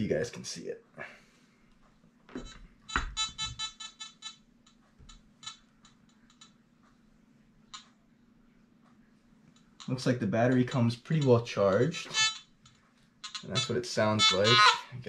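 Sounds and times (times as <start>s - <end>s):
metal detector beeping: 2.4s - 4.4s, 9.8s - 12.5s, 13.2s - 14.8s.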